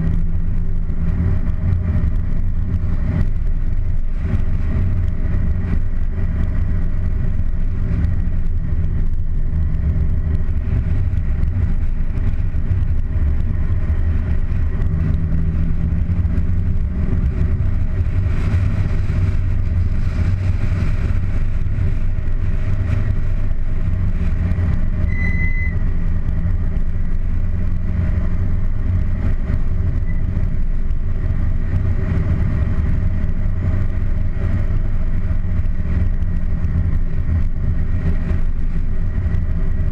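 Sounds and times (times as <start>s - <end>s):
car engine drone: 0.0s - 39.9s
wind and road noise: 0.0s - 39.9s
short high beep: 25.1s - 25.8s.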